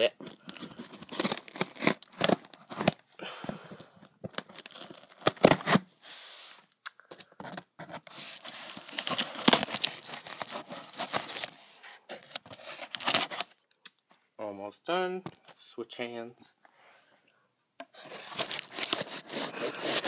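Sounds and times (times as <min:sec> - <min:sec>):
blade cutting cardboard: 0:17.9 - 0:20.0.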